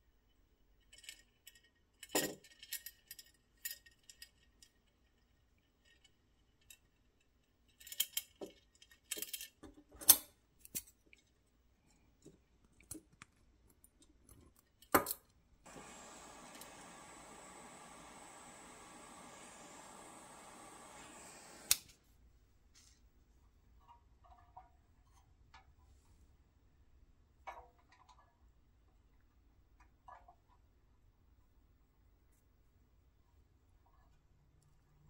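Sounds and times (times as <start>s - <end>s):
butane torch hissing: 15.7s - 22.0s
sharp click: 21.5s - 22.0s.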